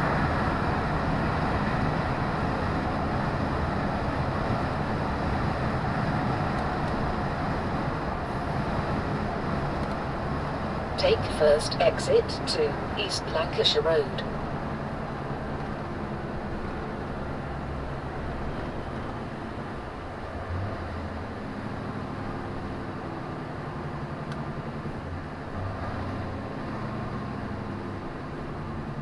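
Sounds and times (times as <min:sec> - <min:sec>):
vehicle engine and road noise: 0:00.0 - 0:29.0.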